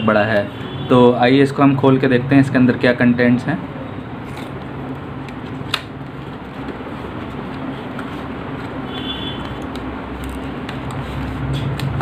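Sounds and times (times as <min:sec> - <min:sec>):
card flap snapping: 0:05.6 - 0:06.0.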